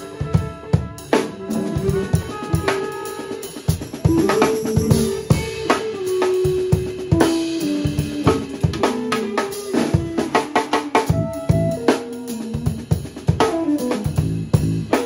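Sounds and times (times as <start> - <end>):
drum kit beat: 0.0 - 15.0
held melody line: 0.0 - 15.0
bass: 3.4 - 15.0.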